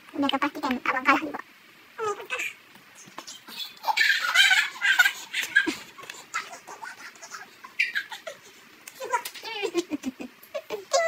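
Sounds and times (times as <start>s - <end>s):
child making high-pitched sounds: 2.0s - 2.6s, 9.0s - 9.7s, 10.6s - 11.0s
child giggling: 3.1s - 11.0s.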